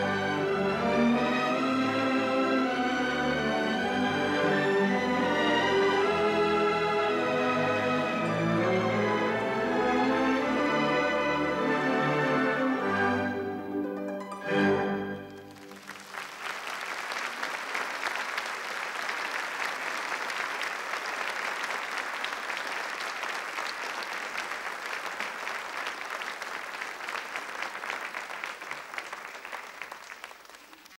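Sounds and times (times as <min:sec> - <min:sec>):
audience applause: 0:15.2 - 0:31.0.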